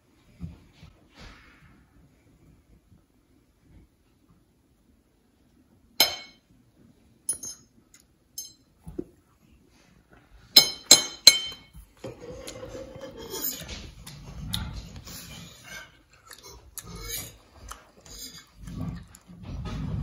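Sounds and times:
utensil clinking against dish: 6.0s - 6.4s, 8.4s - 8.6s, 10.6s - 11.7s.

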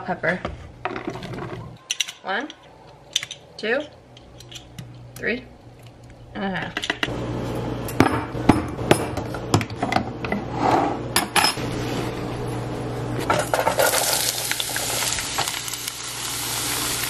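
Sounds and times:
vegetables sizzling in hot oil: 13.8s - 17.0s.

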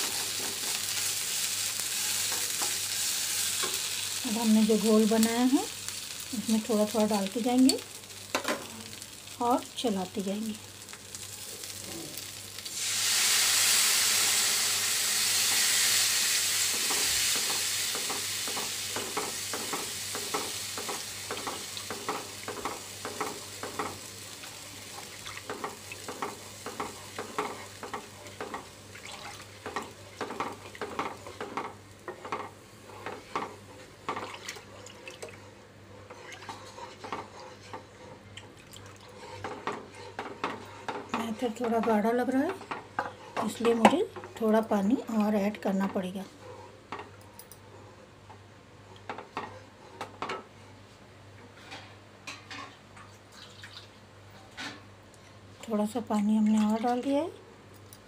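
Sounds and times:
batter hissing in hot oil: 0.0s - 31.0s
spatula scraping pan: 36.0s - 38.2s, 39.1s - 42.0s.

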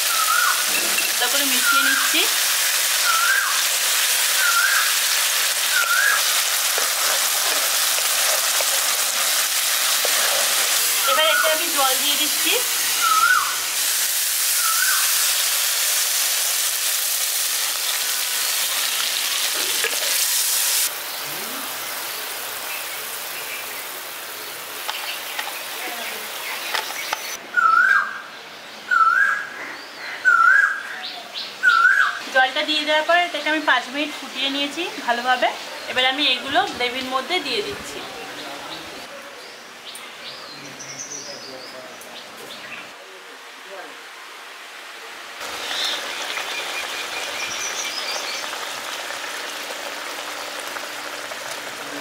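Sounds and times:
gravy bubbling and sizzling: 0.0s - 27.4s, 45.4s - 52.0s
bird whistling call: 0.1s - 0.6s, 3.0s - 3.6s, 4.4s - 5.0s, 5.7s - 6.3s, 13.0s - 13.6s, 14.6s - 15.2s, 27.5s - 28.2s, 28.9s - 29.5s, 30.2s - 30.9s, 31.6s - 32.2s.

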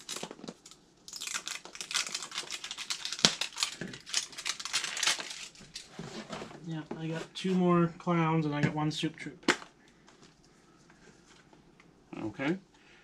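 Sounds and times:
plastic capsules crinkling and clicking: 0.0s - 5.9s.

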